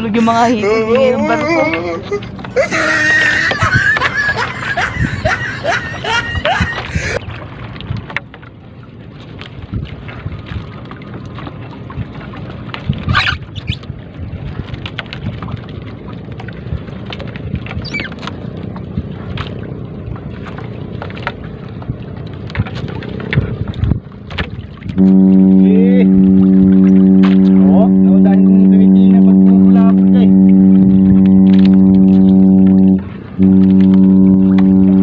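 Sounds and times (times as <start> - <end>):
wind on microphone: 0.0 - 8.2, 9.4 - 35.0
water lapping at boat: 0.0 - 35.0.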